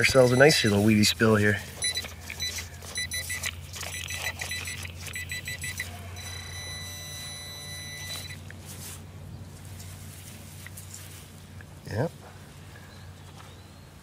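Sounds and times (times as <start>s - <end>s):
metal detector pinpointer beeping: 0.0s - 1.1s, 1.8s - 8.4s
steady high tone: 4.0s - 8.4s.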